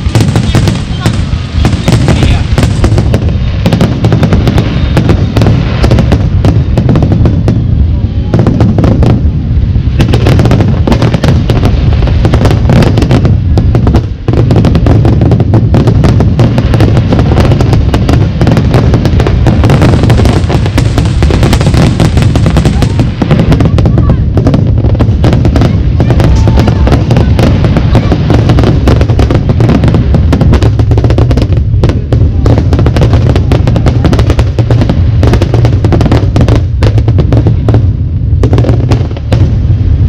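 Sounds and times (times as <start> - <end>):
fireworks bursting and crackling: 0.0 - 40.0.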